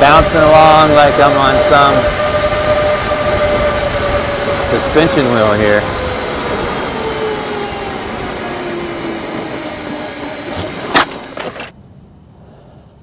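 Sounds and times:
wind and road noise: 0.0 - 13.0
unicycle crashing and clattering: 10.5 - 11.7.

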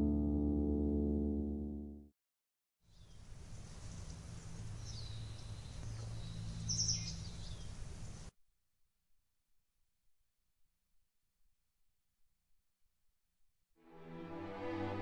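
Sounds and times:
bird chirps: 2.9 - 8.3.

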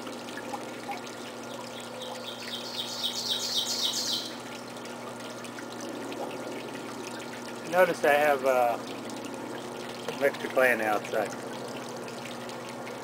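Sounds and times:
steady low hum: 0.0 - 13.0
songbird singing high notes: 2.0 - 4.4.

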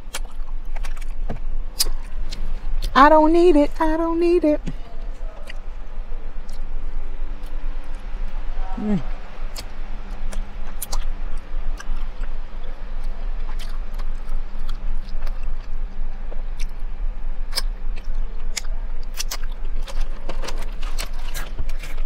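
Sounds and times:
person chewing food: 0.0 - 2.9, 4.8 - 6.7, 9.5 - 16.8, 17.5 - 22.0.

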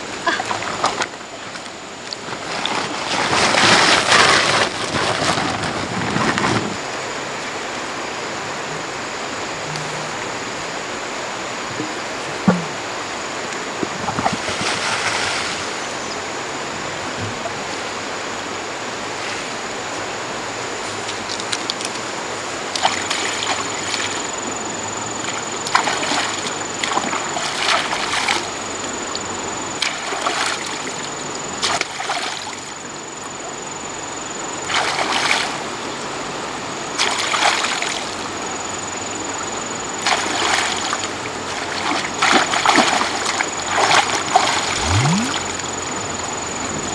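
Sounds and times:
water splashing: 25.7 - 28.5, 41.6 - 45.6
water rushing: 40.0 - 45.8.

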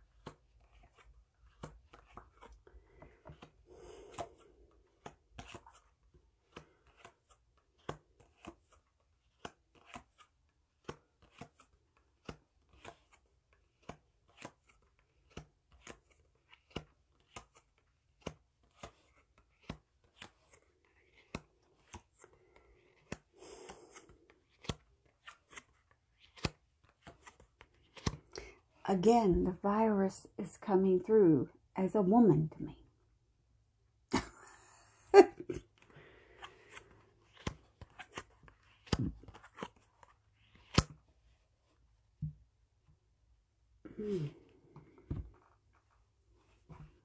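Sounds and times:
cards tapping and snapping: 0.0 - 28.3, 35.8 - 41.0
cards rustling: 0.0 - 28.8, 35.6 - 41.9.

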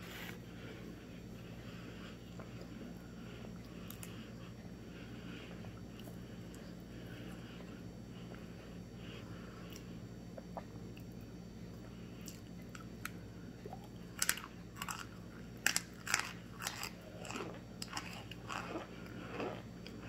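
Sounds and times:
person crunching hard food: 14.1 - 20.0.

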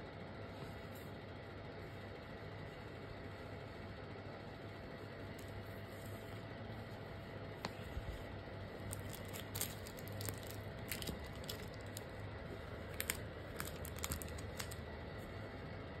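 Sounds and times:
faint low hum: 0.0 - 16.0
plastic sheets crinkling: 8.8 - 14.9.

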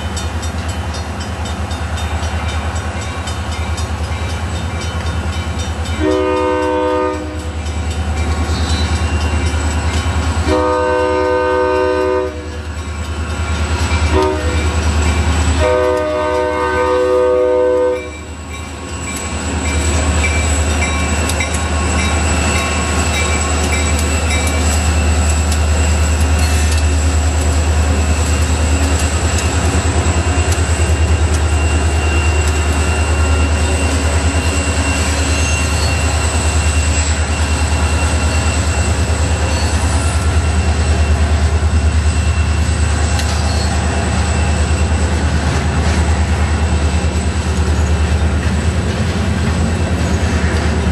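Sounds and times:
low rumble of locomotives: 0.0 - 50.9
locomotive horn blasts: 6.0 - 7.6, 10.4 - 12.6, 14.1 - 14.8, 15.6 - 18.2.

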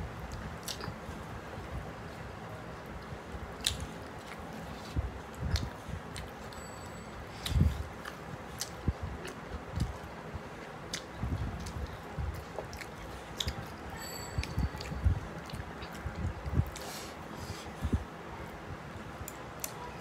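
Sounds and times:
wet chewing and mouth smacks: 0.3 - 1.0, 3.6 - 6.6, 7.4 - 13.8.

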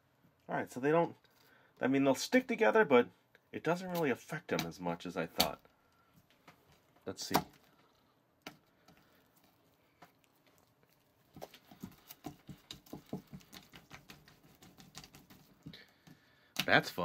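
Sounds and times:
rubber toys squelching: 3.7 - 17.0.

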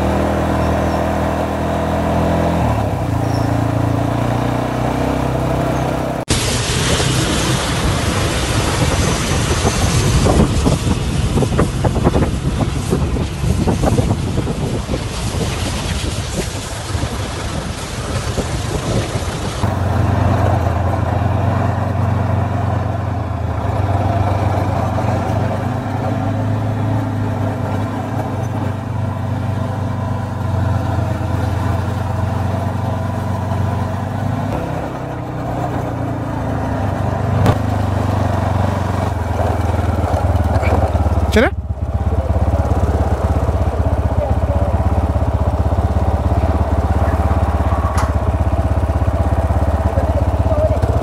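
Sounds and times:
motorcycle engine running: 0.0 - 51.0
wind and rain on microphone: 6.3 - 19.7.

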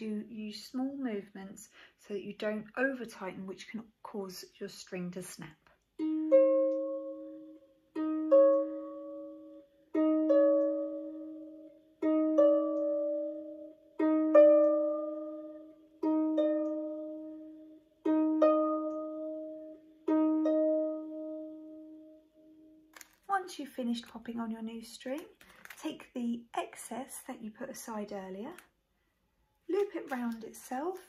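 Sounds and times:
harp strings plucked: 6.0 - 22.2.

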